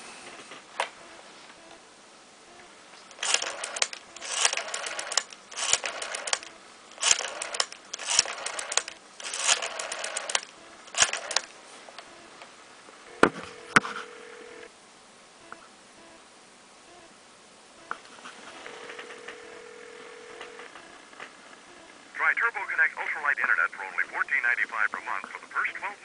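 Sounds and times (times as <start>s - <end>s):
sharp clicks: 3.1s - 11.5s
rotary dial clicking and whirring: 3.1s - 12.1s, 18.6s - 21.0s
steady phone tone: 13.0s - 14.7s, 18.5s - 21.0s.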